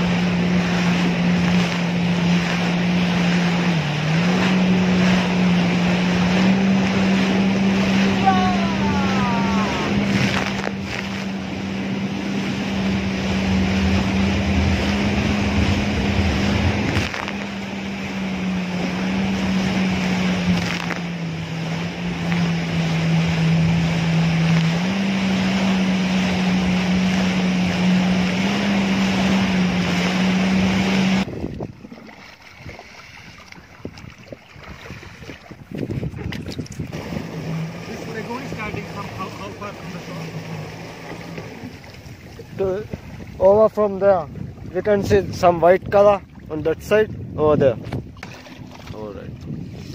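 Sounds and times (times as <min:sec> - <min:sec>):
rush of spray: 0:00.0 - 0:31.3, 0:36.8 - 0:42.5
jet ski engine drone: 0:00.0 - 0:49.9
wind buffeting microphone: 0:00.0 - 0:49.9.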